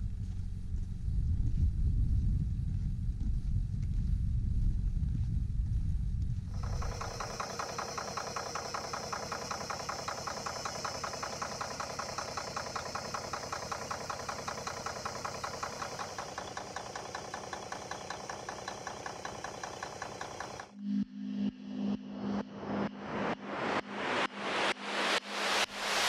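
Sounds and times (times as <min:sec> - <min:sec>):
diesel truck engine idling: 0:06.6 - 0:20.7.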